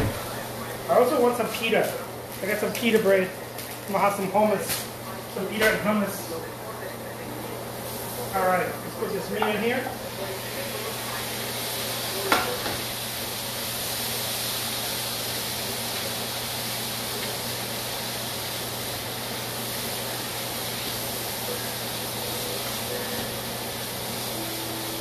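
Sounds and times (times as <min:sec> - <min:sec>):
meat sizzling in a frying pan: 0:07.7 - 0:25.0.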